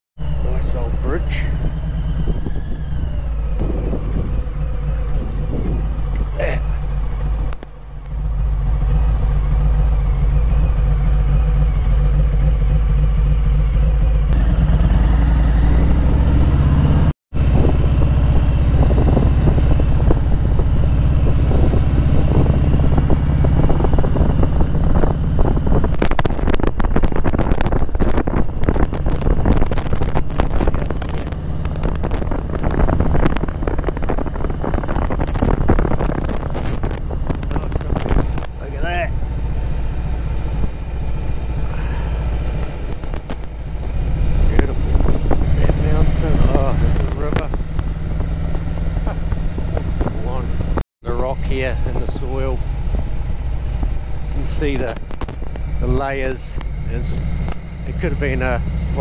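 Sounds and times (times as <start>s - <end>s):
motorcycle engine running: 0.2s - 59.0s
tyres crackling on gravel: 25.9s - 41.9s, 42.6s - 44.8s, 51.3s - 59.0s.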